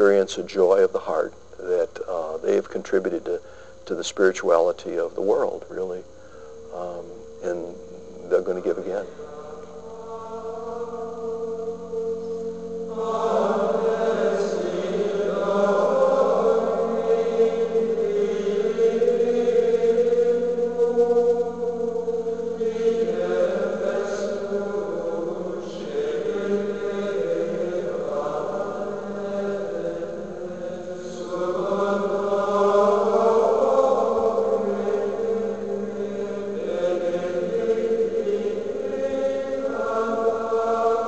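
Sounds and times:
men's choir chanting: 0:08.7 - 0:11.4, 0:12.9 - 0:41.0.

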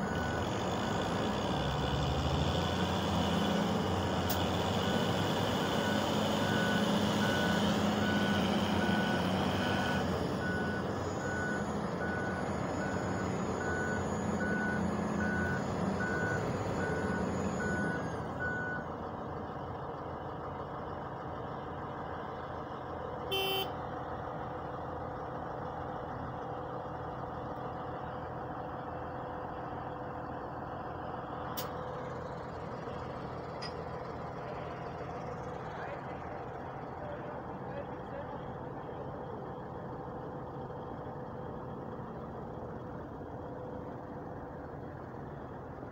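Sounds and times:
reversing alarm beeping: 0:00.0 - 0:01.2, 0:03.4 - 0:18.9, 0:23.3 - 0:23.7
heavy machinery diesel engines: 0:00.0 - 0:45.9.

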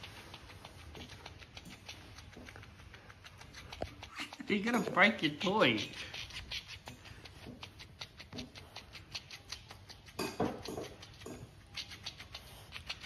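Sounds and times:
dog chewing plush toy: 0:00.0 - 0:13.0.

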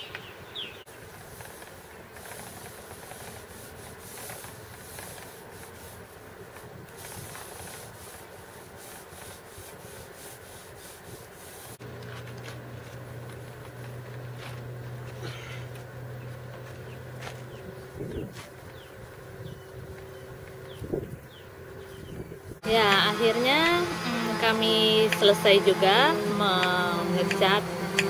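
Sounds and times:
paintbrush scrubbing a hull: 0:00.9 - 0:12.2, 0:22.7 - 0:28.0
low steady hum: 0:11.4 - 0:28.0.

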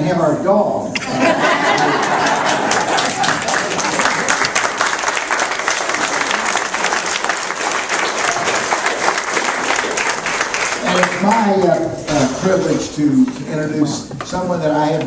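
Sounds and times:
audience applauding: 0:01.2 - 0:11.8.

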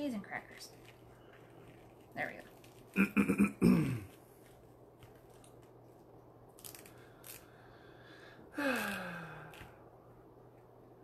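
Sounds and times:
low steady hum: 0:00.0 - 0:11.0
mesh crinkling: 0:00.2 - 0:03.0, 0:04.1 - 0:07.6.

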